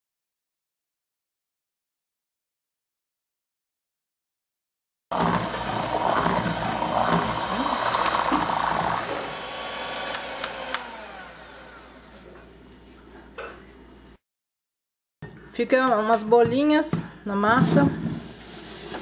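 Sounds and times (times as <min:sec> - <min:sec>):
electric hand mixer running: 0:05.1 - 0:12.5.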